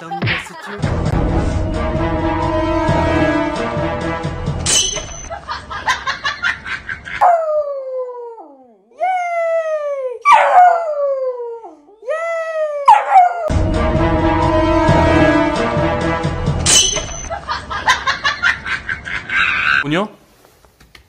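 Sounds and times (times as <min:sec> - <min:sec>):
puppy howling: 0:07.2 - 0:08.7, 0:10.2 - 0:11.8, 0:12.7 - 0:13.5.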